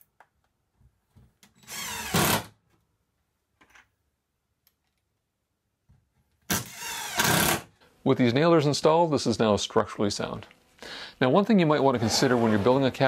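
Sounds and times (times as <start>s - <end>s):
cordless drill running: 1.6s - 2.4s.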